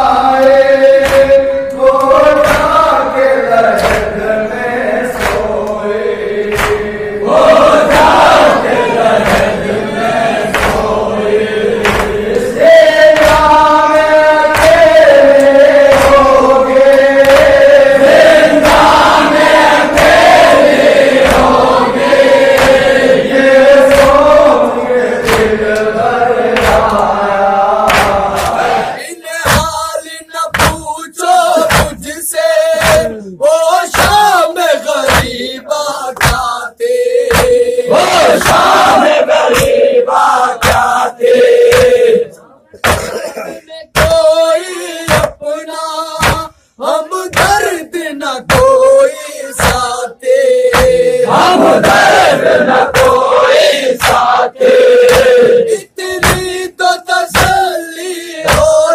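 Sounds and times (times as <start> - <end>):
men chanting in unison: 0.0 - 58.9
hand striking chest: 10.5 - 10.9, 11.8 - 12.2, 45.1 - 45.4, 58.4 - 58.9.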